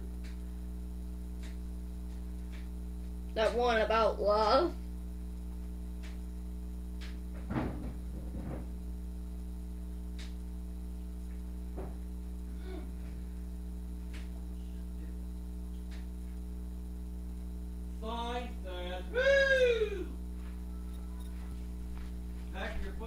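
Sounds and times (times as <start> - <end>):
electrical mains hum: 0.0 - 23.0
faint ticks: 1.3 - 3.6
high pitched cries: 19.1 - 20.2.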